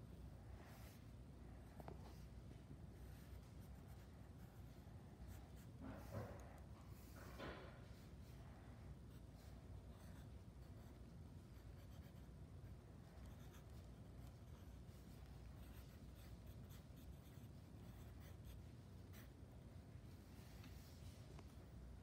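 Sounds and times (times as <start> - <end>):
pencil scratching on paper: 3.0 - 6.4, 9.0 - 19.6.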